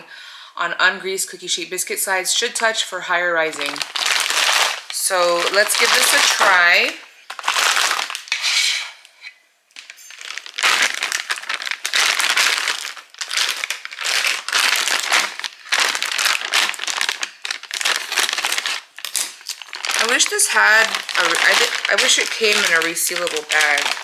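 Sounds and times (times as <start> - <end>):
plastic bag crinkling: 3.4 - 8.4, 9.7 - 24.0
scissors cutting plastic bag: 3.6 - 8.3, 9.8 - 24.0.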